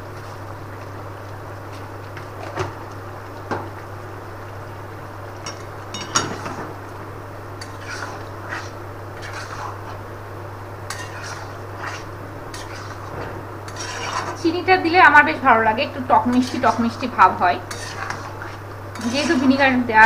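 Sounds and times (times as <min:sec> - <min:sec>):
steady low hum: 0:00.0 - 0:20.0
metal spatula scraping a pan: 0:07.6 - 0:10.0, 0:10.9 - 0:13.1, 0:13.7 - 0:14.4, 0:16.2 - 0:19.8.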